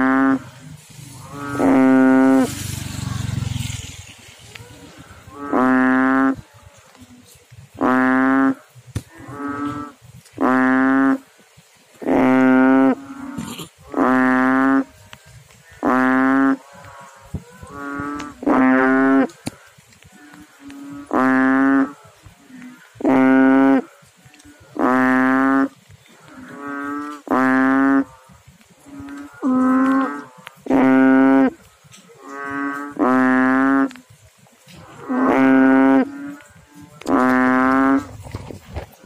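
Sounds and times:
frog calling: 0:00.0 - 0:02.5, 0:15.6 - 0:28.2.

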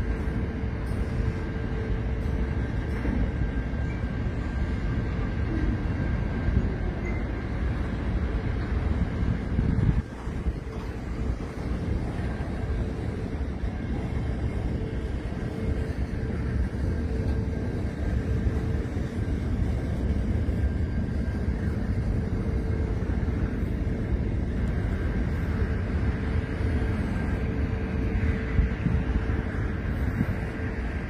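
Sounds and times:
thin steady whine: 0:00.0 - 0:31.0
train wheels rumbling on rails: 0:00.0 - 0:31.0.

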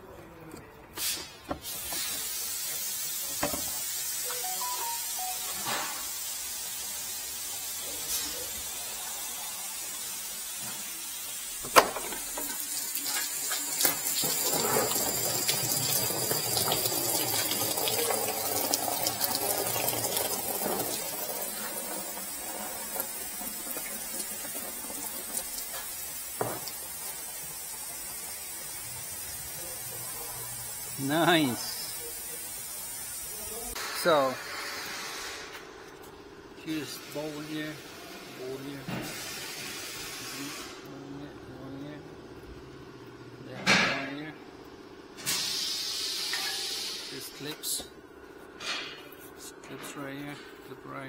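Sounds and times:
coolant splashing onto concrete: 0:12.2 - 0:29.8.

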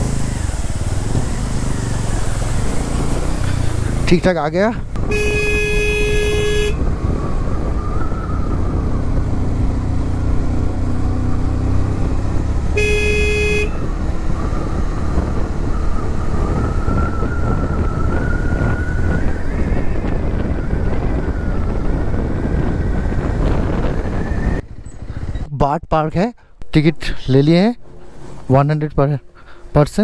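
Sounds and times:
wind noise: 0:00.0 - 0:25.5
motorcycle engine rumbling: 0:00.0 - 0:30.0
motorcycle horn honking: 0:05.0 - 0:06.8, 0:12.7 - 0:13.9.

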